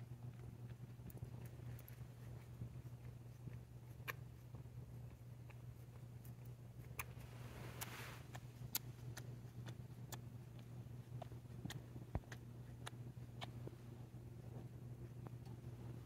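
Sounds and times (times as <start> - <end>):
low room hum: 0.0 - 16.0
fur rustling on blanket: 7.3 - 8.3.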